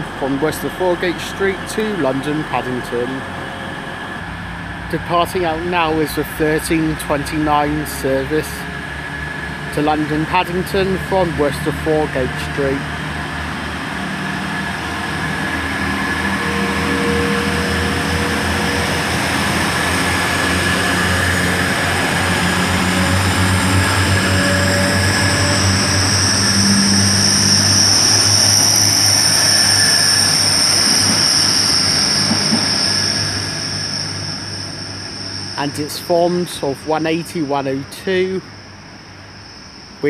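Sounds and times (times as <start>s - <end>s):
diesel train engines droning: 0.0s - 40.0s
loud high-pitched squeak: 15.9s - 19.9s, 23.9s - 35.8s.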